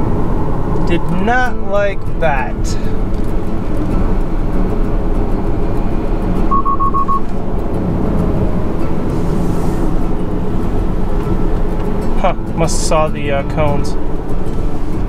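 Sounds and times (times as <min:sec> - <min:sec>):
road and tyre rumble: 0:00.0 - 0:15.0
short high alert beeps: 0:06.5 - 0:07.2.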